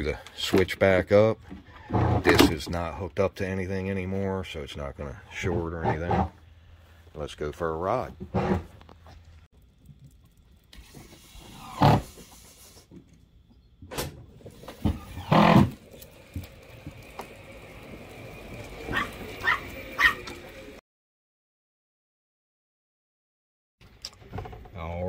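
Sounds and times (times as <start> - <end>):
small dog barking: 18.9 - 20.3.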